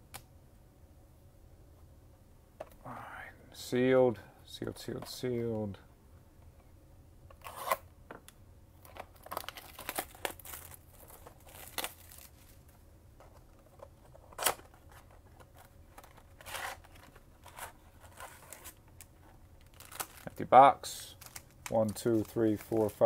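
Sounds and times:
plastic wrap crinkling and tearing: 8.8s - 12.8s, 19.6s - 20.5s, 21.1s - 23.0s.

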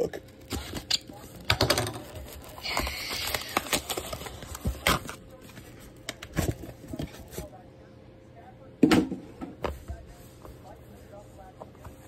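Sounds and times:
plastic wrap crinkling: 1.9s - 7.5s.

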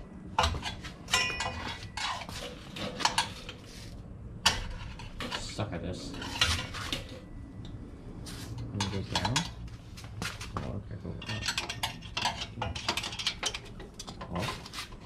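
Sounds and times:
metal tools clinking: 0.4s - 3.6s, 8.6s - 9.6s, 11.1s - 15.0s.

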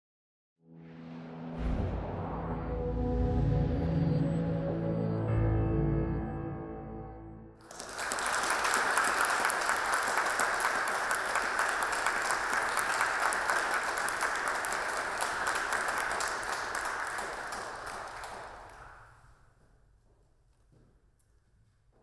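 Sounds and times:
audience clapping: 7.6s - 19.3s.

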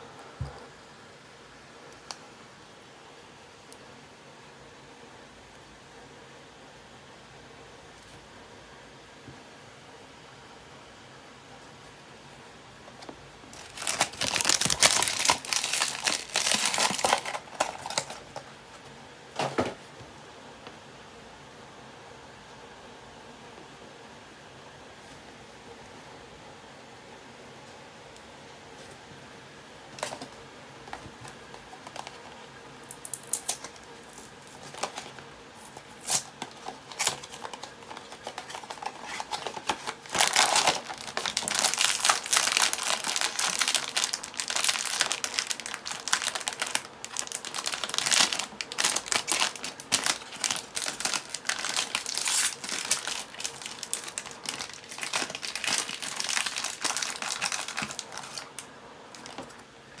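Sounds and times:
foil wrapper tearing and crinkling: 13.5s - 18.4s, 33.0s - 58.6s.

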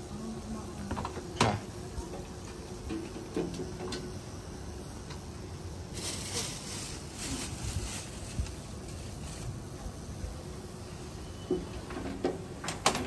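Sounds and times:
plastic bag rustling: 5.8s - 9.8s.

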